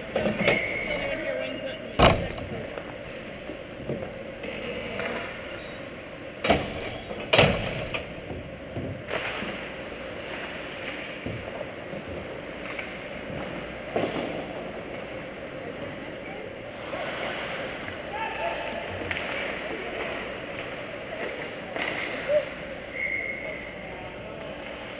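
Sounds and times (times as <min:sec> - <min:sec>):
rink background noise: 0:00.0 - 0:24.9.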